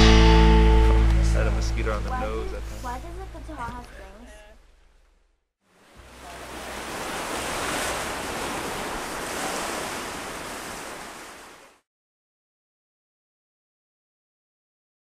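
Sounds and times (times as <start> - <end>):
rushing surf-like noise: 5.8 - 11.8.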